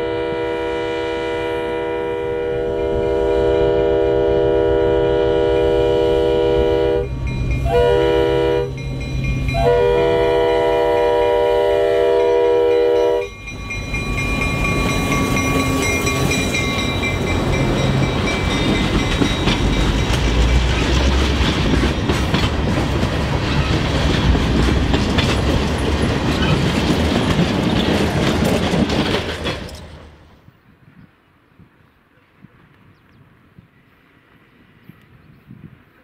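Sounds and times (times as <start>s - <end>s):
locomotive air horn: 0.0s - 8.9s, 9.5s - 13.4s
diesel locomotive engine running: 0.0s - 30.3s
wheel and rail clatter: 13.3s - 30.2s.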